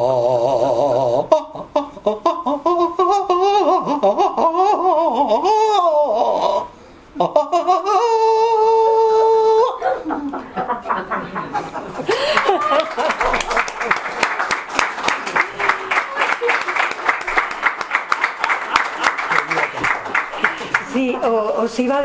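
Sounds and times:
person's wordless wavering voice: 0:00.0 - 0:10.4.

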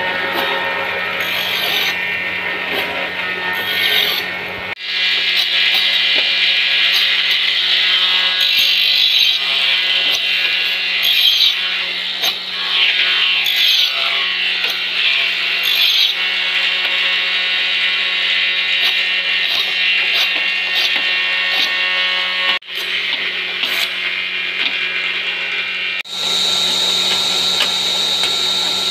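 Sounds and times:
wood rasping on sanding disc: 0:00.0 - 0:04.3, 0:05.2 - 0:16.2, 0:18.8 - 0:22.6
electric motor whine: 0:00.0 - 0:28.9.

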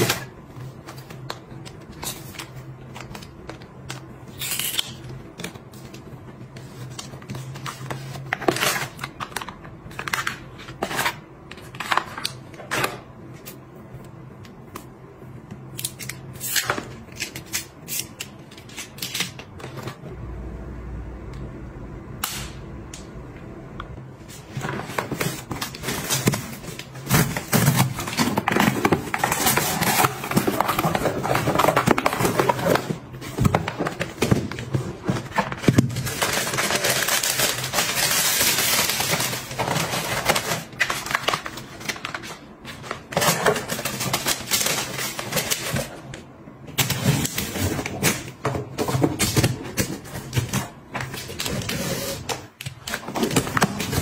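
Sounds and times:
paper and cardboard rustling: 0:24.2 - 0:46.1
boxes and lids clicking and knocking: 0:24.6 - 0:46.0.

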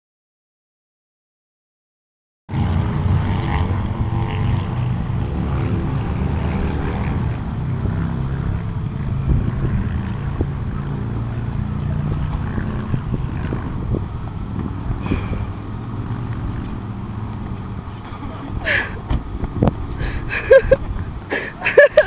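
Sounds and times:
wind rumble on microphone: 0:02.5 - 0:22.0
van engine running: 0:07.3 - 0:22.0.

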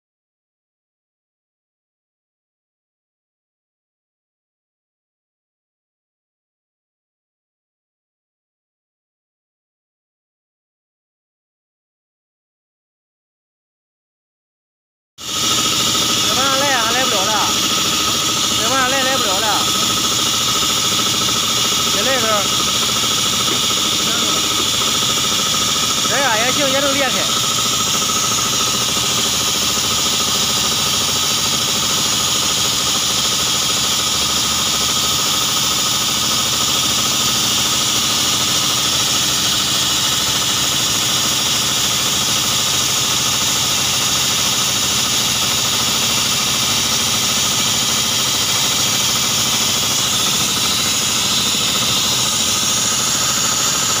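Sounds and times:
excavator rock drilling: 0:15.2 - 0:54.0.

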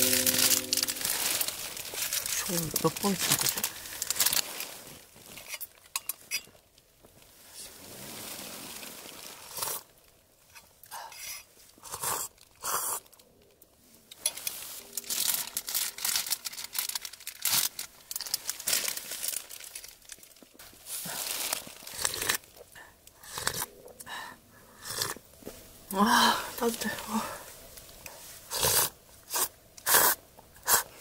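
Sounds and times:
jacket and plastic bags rustling: 0:00.0 - 0:10.2, 0:14.2 - 0:22.6.

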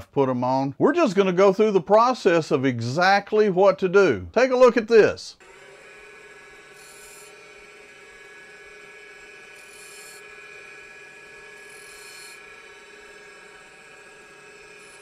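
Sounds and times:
turning tool scraping wood: 0:05.4 - 0:15.0
wood lathe motor whine: 0:05.4 - 0:15.0.

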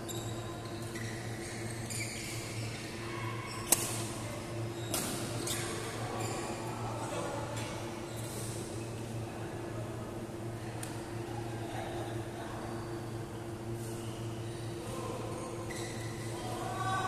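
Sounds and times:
shoes squeaking on floor: 0:00.0 - 0:02.8, 0:15.6 - 0:16.2
steady low hum: 0:00.0 - 0:17.0.

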